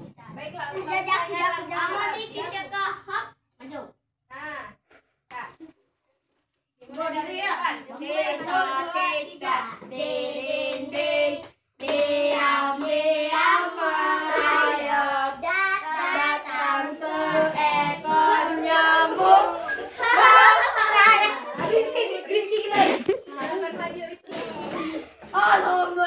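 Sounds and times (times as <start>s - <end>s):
children singing together: 7.9s - 22.4s, 23.3s - 26.0s.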